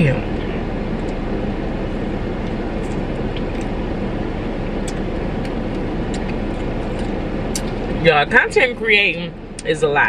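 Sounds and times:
car rumble in motion: 0:00.0 - 0:10.0.

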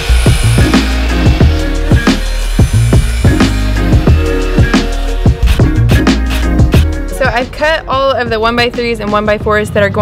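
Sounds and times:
miter saw cutting wood: 0:00.0 - 0:06.4
electronic music with heavy beat: 0:00.0 - 0:09.9.

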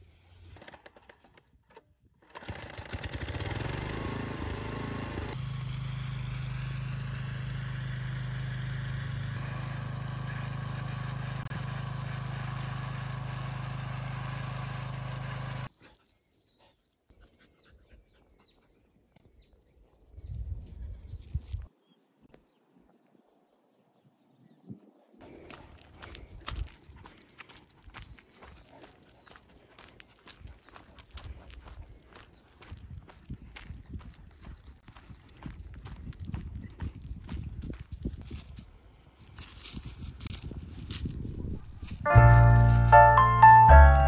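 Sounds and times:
small engine pull-started and running: 0:00.2 - 0:15.7.

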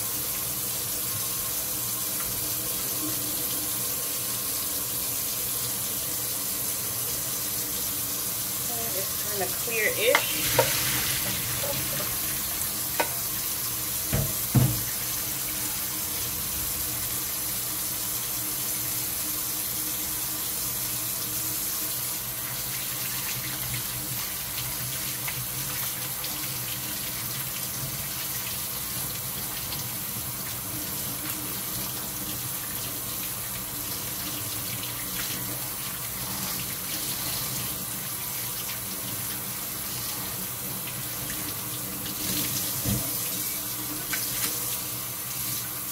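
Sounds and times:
tap running into steel sink: 0:10.1 - 0:12.1, 0:12.9 - 0:13.3, 0:14.0 - 0:15.0.

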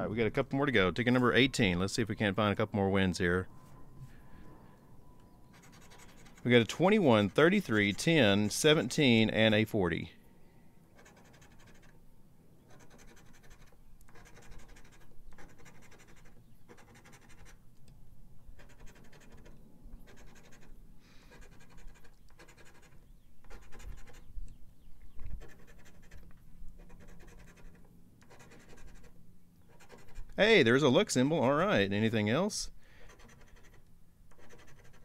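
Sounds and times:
coin scratching lottery ticket: 0:05.5 - 0:09.6, 0:11.0 - 0:12.0, 0:12.7 - 0:17.6, 0:18.5 - 0:24.3, 0:25.3 - 0:30.8, 0:33.0 - 0:35.0.

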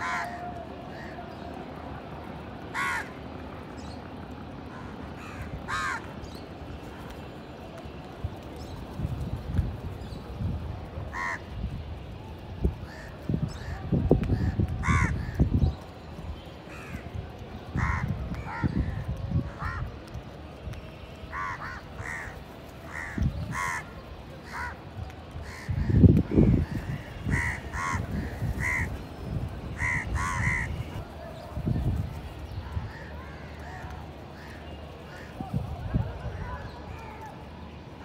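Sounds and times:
crows cawing: 0:00.0 - 0:01.1, 0:02.7 - 0:03.2, 0:04.7 - 0:06.1, 0:11.1 - 0:11.5, 0:14.4 - 0:15.4, 0:17.8 - 0:18.8, 0:19.6 - 0:19.9, 0:21.3 - 0:24.8, 0:25.4 - 0:29.0, 0:29.8 - 0:30.9.

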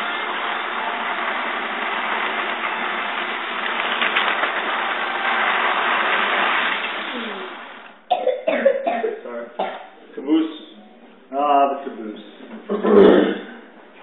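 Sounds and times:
toy train running on metal track: 0:00.0 - 0:07.9.

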